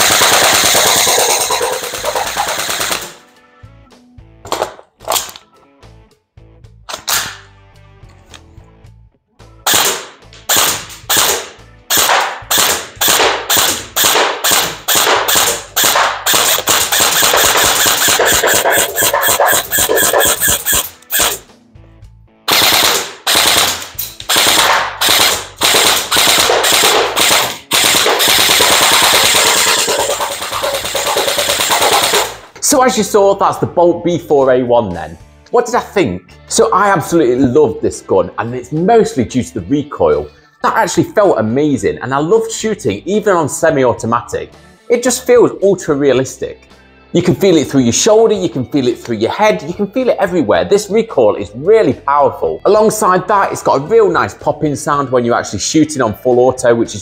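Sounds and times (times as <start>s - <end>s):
airsoft rifle rapid popping: 0.0s - 3.2s, 9.7s - 21.4s, 22.5s - 32.5s.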